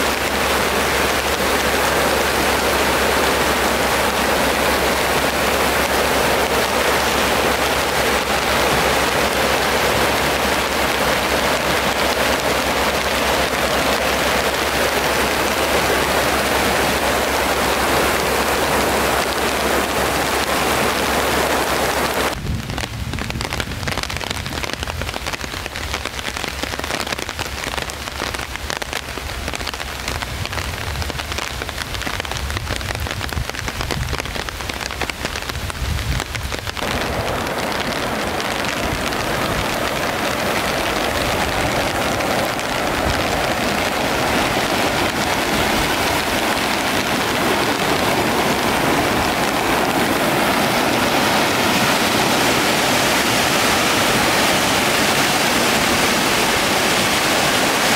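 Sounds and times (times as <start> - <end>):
river rushing over weir: 0.0 - 22.4, 34.3 - 57.9
crackling patter: 22.0 - 55.1.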